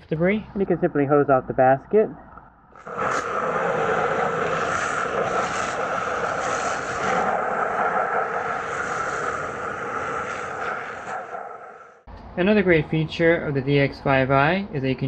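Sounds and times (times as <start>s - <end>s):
hose spraying water on filter: 2.8s - 11.4s.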